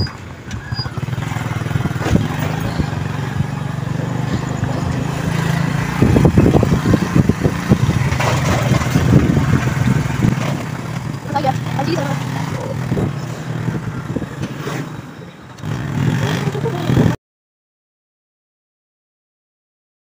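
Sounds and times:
loud uneven rumble: 0.0s - 15.0s
vehicle engine humming: 0.0s - 17.2s.

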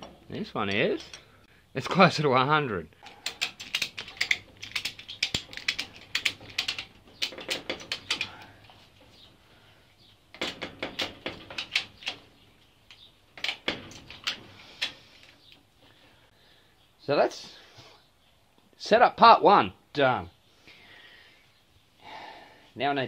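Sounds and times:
ratchet strap clicking: 3.0s - 8.4s.

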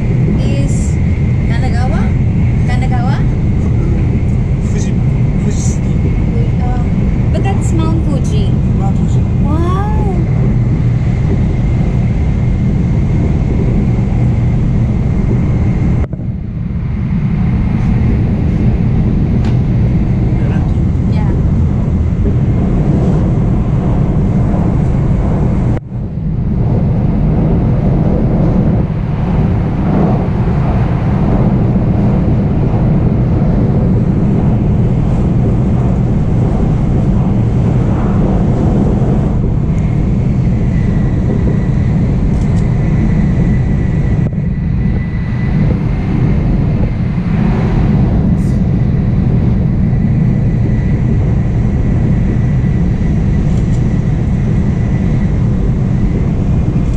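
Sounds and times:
train low rumble with hiss: 0.0s - 56.9s.

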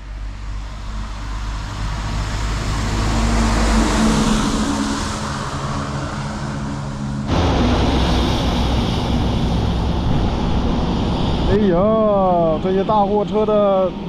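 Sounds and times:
truck engine drone: 0.0s - 14.0s
wind on microphone: 0.5s - 14.0s.

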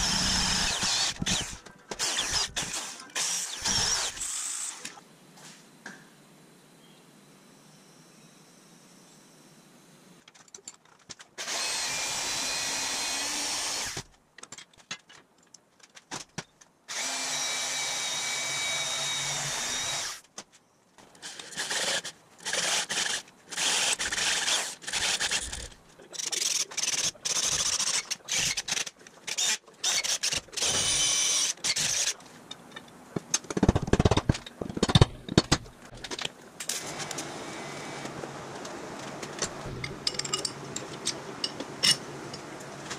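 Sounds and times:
drill boring into steel: 0.0s - 4.8s, 11.4s - 14.0s, 16.9s - 20.2s
knocks and clatter: 33.1s - 36.3s.

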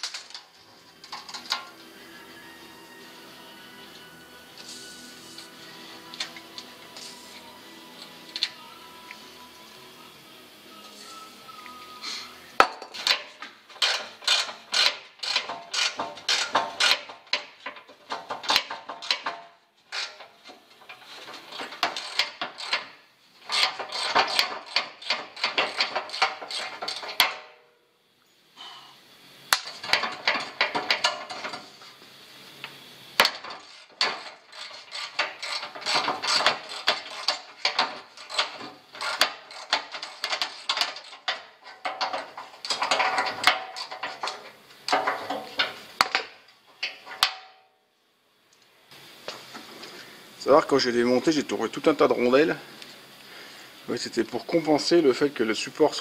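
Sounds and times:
scraping rust off metal: 0.0s - 8.7s, 10.9s - 27.6s, 29.5s - 32.0s, 33.2s - 47.3s.

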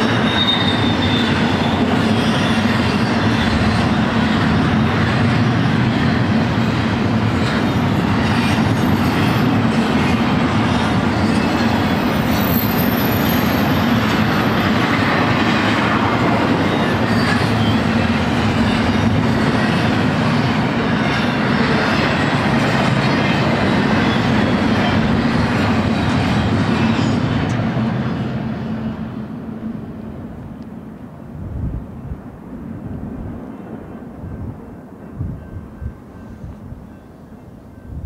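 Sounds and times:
high wheel squeal: 0.0s - 4.5s, 7.4s - 15.5s, 16.3s - 22.1s
train cars rumbling on rails: 0.0s - 38.0s.

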